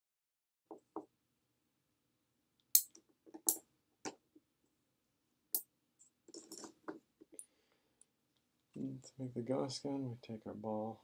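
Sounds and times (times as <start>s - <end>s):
steel balls clicking on magnet: 2.8s - 3.6s.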